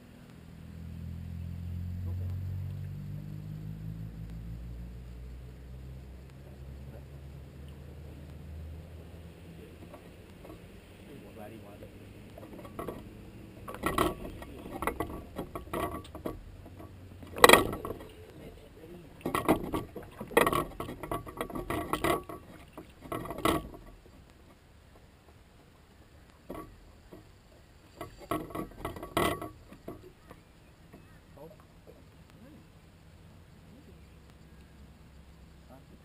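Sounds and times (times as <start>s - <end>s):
knocks and rattles on metal boat: 12.4s - 18.3s, 19.1s - 24.6s, 27.9s - 31.1s.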